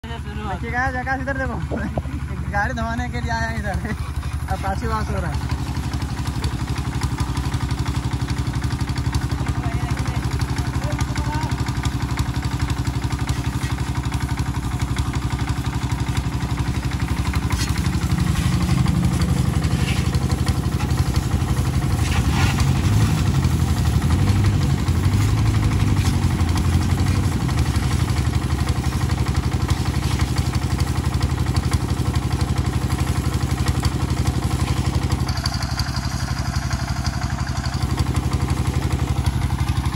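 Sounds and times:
pressure washer pump humming: 0.0s - 39.9s
water jet hissing: 3.8s - 9.3s, 10.0s - 35.9s.

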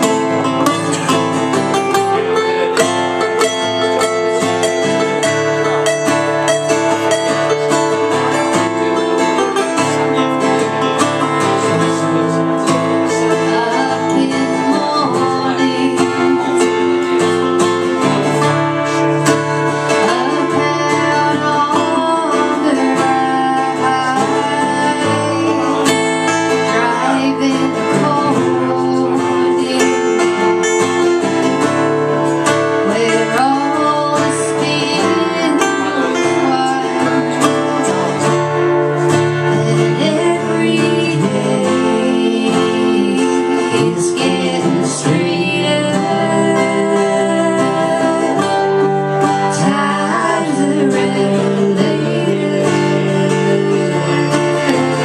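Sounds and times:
acoustic guitars playing: 0.0s - 55.0s.

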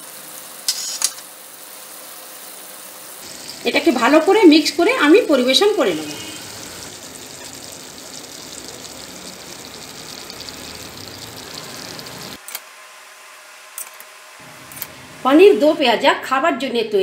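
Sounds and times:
curry bubbling in a pan: 3.2s - 12.4s.

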